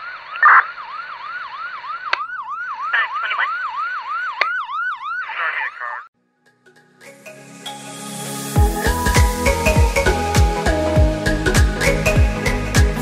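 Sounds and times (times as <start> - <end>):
emergency siren yelping: 0.0 - 6.1
higher siren: 0.0 - 6.1.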